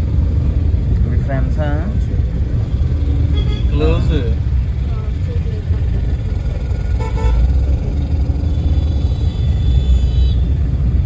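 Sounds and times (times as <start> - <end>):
car engine and road rumble: 0.0 - 11.0
vehicle horn toot: 3.3 - 3.8, 7.0 - 7.4, 8.5 - 10.5.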